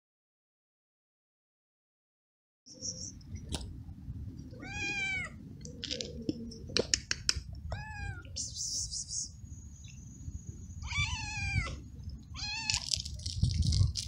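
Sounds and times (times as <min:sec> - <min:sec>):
cat meowing: 0:04.6 - 0:05.4, 0:07.7 - 0:08.4, 0:10.8 - 0:12.9
sharp clicks: 0:06.7 - 0:07.5.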